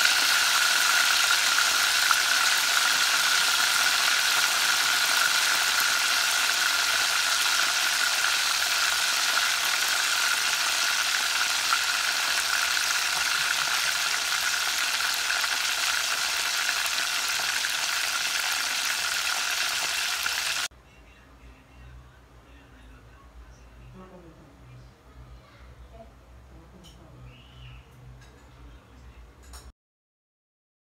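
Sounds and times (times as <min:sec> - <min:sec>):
fish deep-frying in oil: 0:00.0 - 0:20.7.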